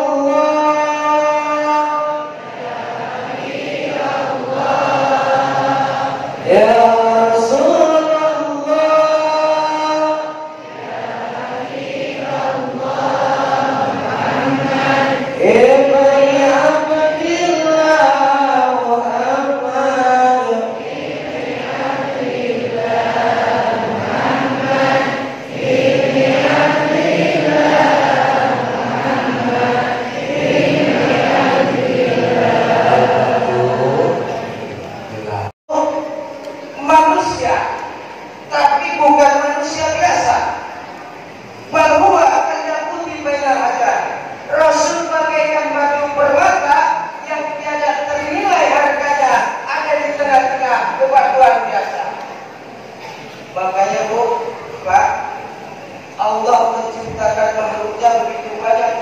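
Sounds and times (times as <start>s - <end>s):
group chanting: 2.1s - 8.0s, 9.7s - 16.9s, 17.9s - 35.5s.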